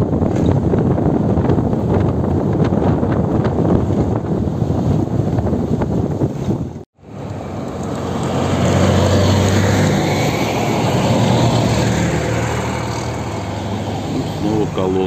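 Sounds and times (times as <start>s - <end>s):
tyres on asphalt: 5.4s - 15.0s
armored vehicle engine drone: 7.0s - 15.0s.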